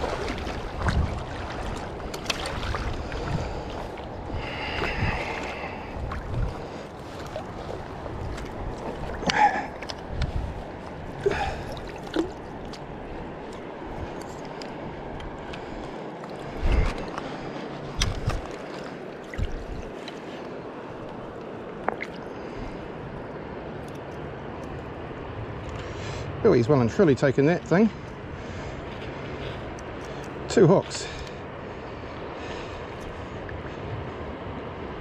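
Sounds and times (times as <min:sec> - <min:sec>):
splashing and sloshing in water: 0:00.0 - 0:24.9
river water over shallows: 0:00.0 - 0:35.0.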